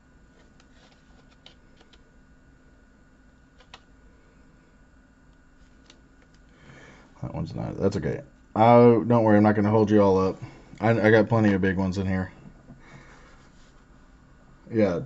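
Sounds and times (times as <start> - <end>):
faint clicks and taps: 0.4 - 2.0.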